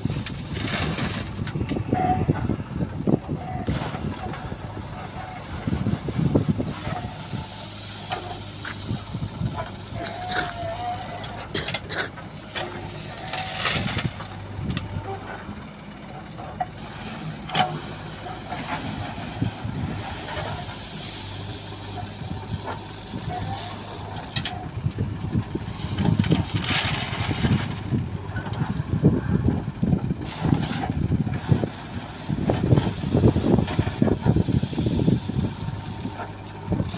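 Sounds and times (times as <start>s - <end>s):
gravel clattering in steel bucket: 0.0s - 1.6s, 6.7s - 15.4s, 16.7s - 29.2s, 30.2s - 36.9s
diesel engine running: 0.0s - 36.9s.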